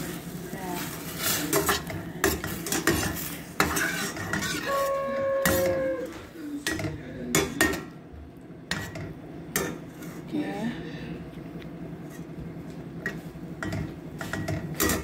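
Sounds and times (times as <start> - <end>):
spoon scraping a metal pan: 1.1 - 6.8, 13.0 - 15.0.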